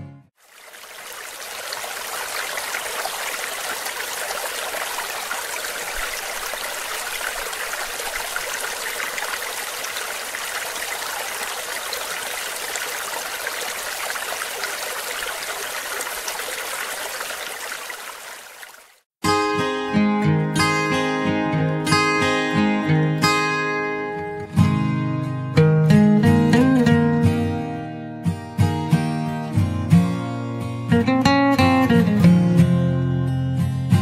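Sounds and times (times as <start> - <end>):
waterfall rushing and splashing: 0.4 - 19.0.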